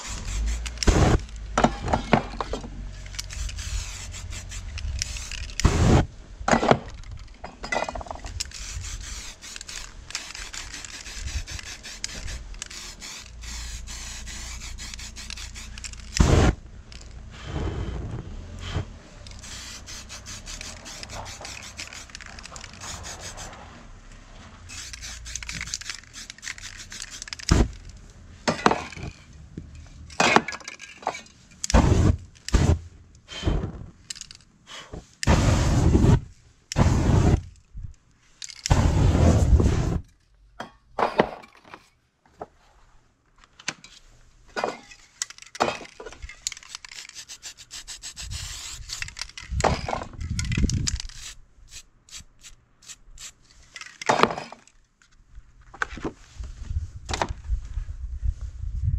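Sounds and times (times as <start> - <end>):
aerosol spray cans hissing: 0.0 - 1.5, 3.0 - 6.0, 8.4 - 17.0, 18.6 - 23.5, 24.7 - 27.9, 46.5 - 49.6, 50.9 - 53.4.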